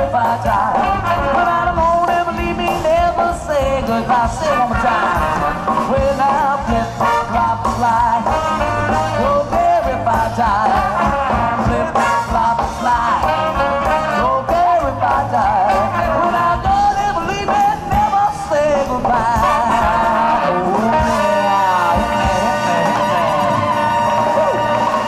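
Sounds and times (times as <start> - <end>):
live rhythm and blues band: 0.0 - 25.0
person singing: 0.0 - 25.0.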